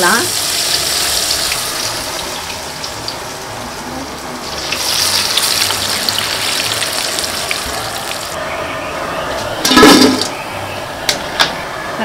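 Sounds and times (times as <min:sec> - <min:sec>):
oil sizzling and bubbling: 0:00.0 - 0:08.4.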